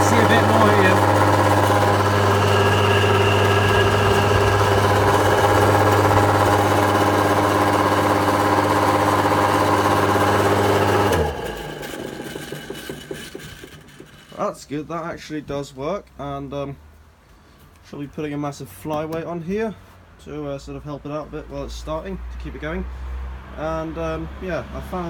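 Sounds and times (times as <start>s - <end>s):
electric motor humming: 0.0s - 14.4s
motor winding down: 0.0s - 14.4s.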